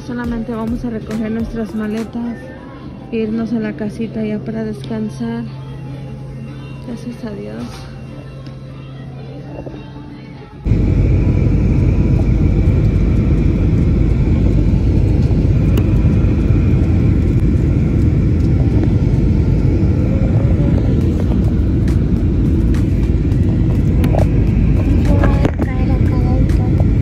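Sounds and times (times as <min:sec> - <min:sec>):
faint high hum: 0:00.0 - 0:27.0
jet cabin engine rumble: 0:10.6 - 0:27.0.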